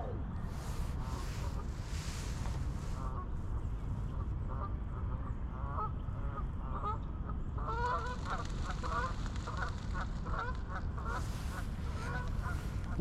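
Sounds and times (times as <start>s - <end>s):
geese honking: 7.6s - 13.0s.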